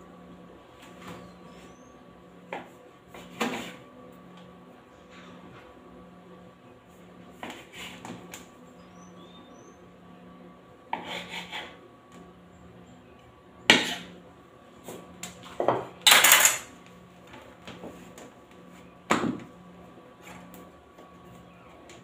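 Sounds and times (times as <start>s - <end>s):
knife clattering in steel sink: 16.1s - 16.7s.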